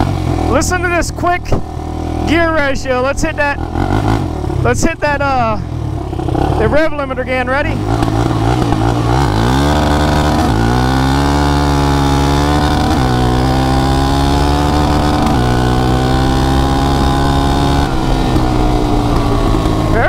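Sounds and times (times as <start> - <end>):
quad bike engine accelerating: 0.0 - 20.0.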